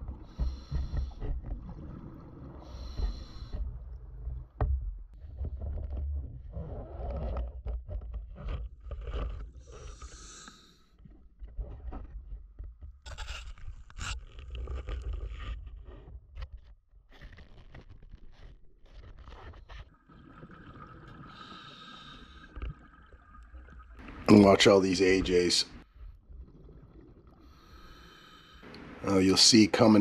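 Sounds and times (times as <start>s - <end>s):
exhaled bubbles rumbling: 0.0s - 7.3s, 19.8s - 24.7s, 25.9s - 28.1s
diver breathing through regulator: 0.2s - 1.5s, 2.5s - 3.8s, 9.6s - 11.0s, 21.2s - 22.8s, 27.4s - 29.0s
knocks and scrapes of speargun: 7.0s - 10.2s, 11.6s - 16.5s.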